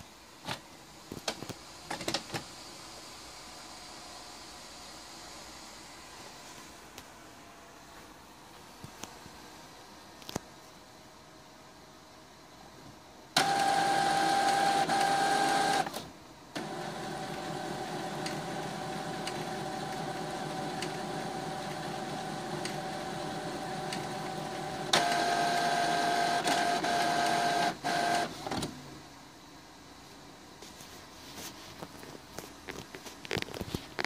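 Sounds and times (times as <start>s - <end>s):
printer mechanism running: 13.4s - 28.7s
printer motor whine: 13.4s - 28.7s.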